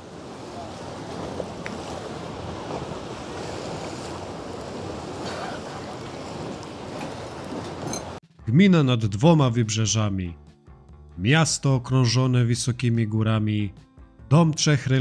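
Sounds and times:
waves washing on rocky shore: 0:00.0 - 0:08.2.

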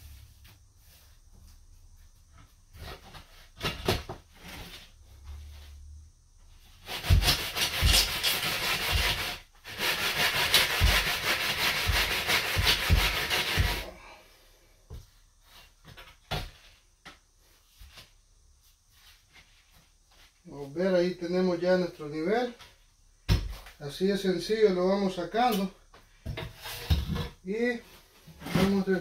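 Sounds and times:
level scraping mortar: 0:06.8 - 0:14.0, 0:26.4 - 0:29.0.

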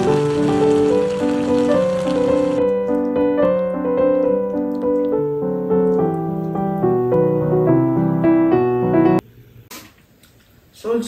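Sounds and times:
piano waltz: 0:00.0 - 0:09.2.

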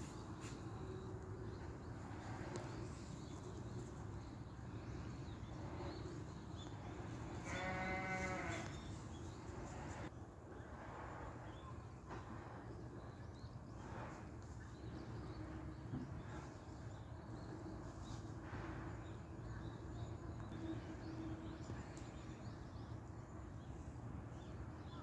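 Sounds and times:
animal bleating: 0:07.4 - 0:08.7.

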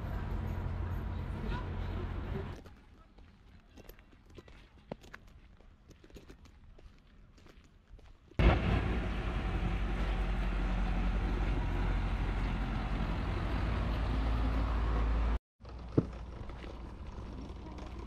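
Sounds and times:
road noise: 0:00.0 - 0:02.7, 0:08.4 - 0:18.0
vehicle engine running: 0:08.4 - 0:18.0.

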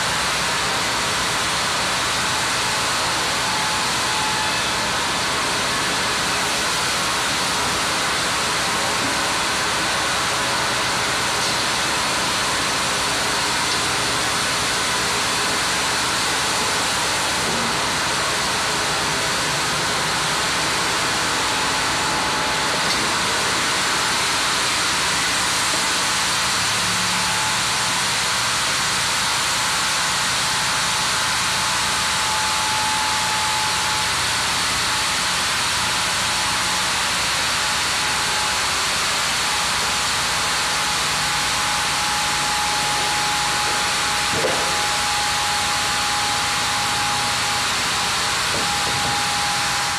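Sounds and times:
band saw machinery rushing: 0:31.2 - 0:49.9.

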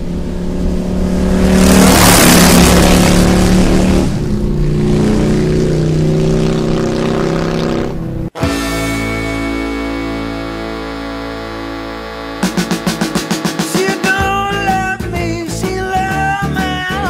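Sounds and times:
rushing swell: 0:00.0 - 0:07.0
vehicle engine revving: 0:00.0 - 0:08.4, 0:09.7 - 0:14.5.

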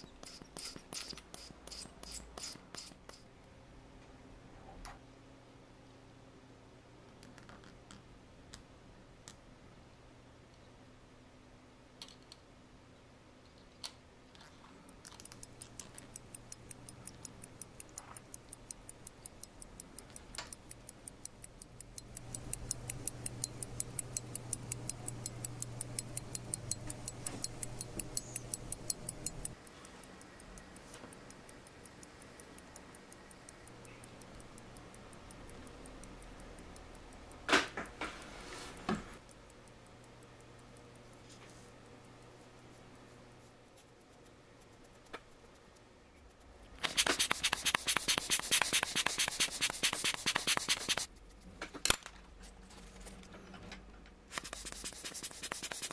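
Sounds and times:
sharp clicks: 0:14.9 - 0:42.2, 0:46.7 - 0:51.1, 0:54.3 - 0:55.9
watch ticking: 0:14.9 - 0:43.1, 0:44.0 - 0:51.1, 0:54.4 - 0:55.9.

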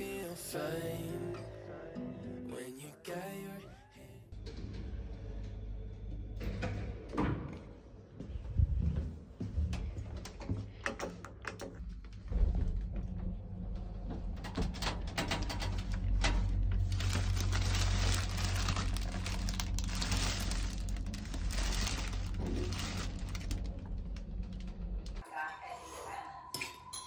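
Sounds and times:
steady low hum: 0:12.0 - 0:25.2
paper and plastic packets rustling: 0:16.2 - 0:25.2.

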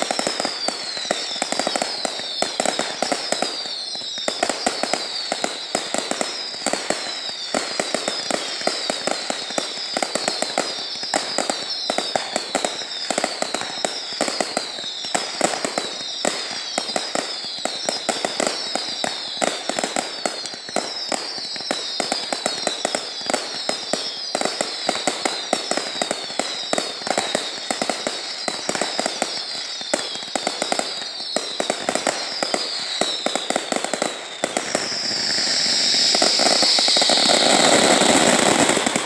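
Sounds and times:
falling firework whistles: 0:00.0 - 0:39.0
firecrackers crackling: 0:00.0 - 0:39.0
loud hissing rush: 0:34.6 - 0:39.0.

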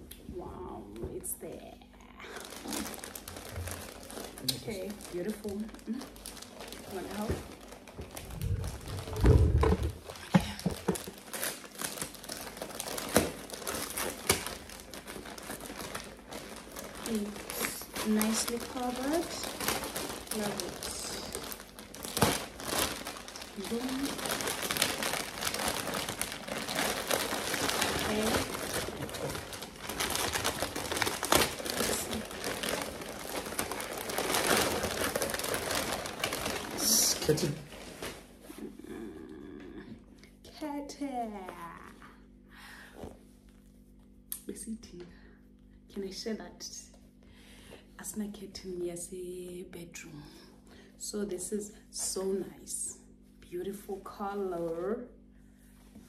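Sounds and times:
wrapping paper crinkling: 0:02.3 - 0:38.6.

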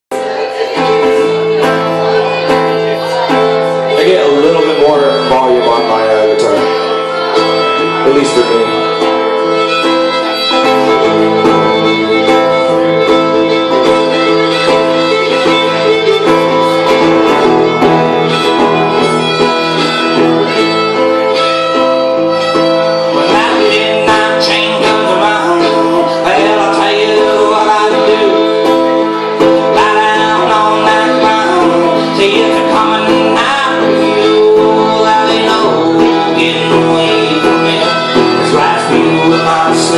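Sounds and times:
fiddle melody: 0:00.1 - 0:39.9
strummed guitar chords: 0:00.1 - 0:39.9.

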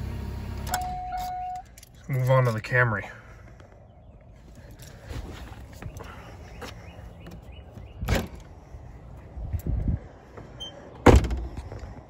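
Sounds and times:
car door slamming shut: 0:11.0 - 0:11.5.

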